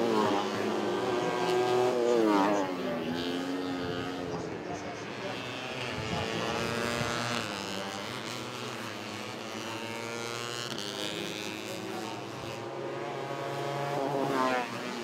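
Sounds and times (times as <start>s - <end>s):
racing motorcycles revving past: 0.0s - 15.0s.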